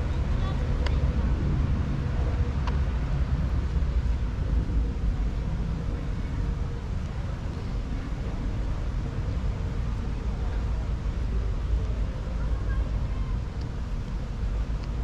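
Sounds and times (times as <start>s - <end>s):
dense low rumble: 0.0s - 15.0s.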